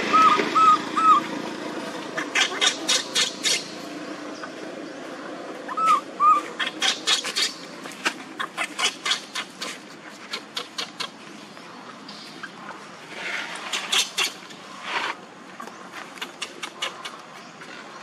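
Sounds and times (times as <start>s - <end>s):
baby monkey screeching cries: 0.0s - 1.3s, 2.2s - 3.7s, 5.7s - 7.6s, 8.4s - 9.8s
monkey squeals: 0.0s - 1.3s, 2.2s - 3.7s, 5.7s - 7.6s, 8.4s - 11.1s.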